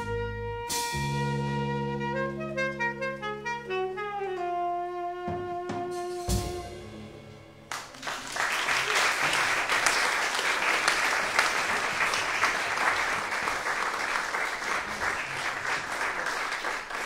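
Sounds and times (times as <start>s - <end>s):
audience applause: 7.7s - 17.0s.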